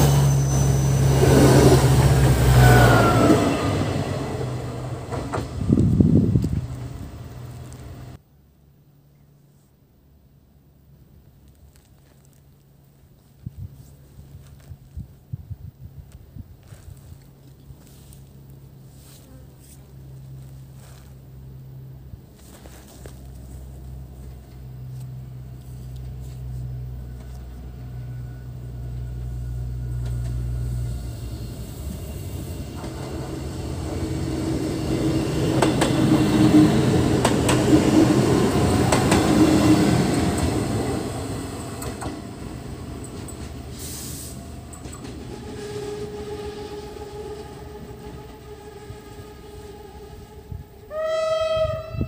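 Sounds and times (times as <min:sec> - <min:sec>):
diesel train passing: 0:00.0 - 0:08.2, 0:16.6 - 0:52.0
wheels clicking over rail joints: 0:35.3 - 0:45.4.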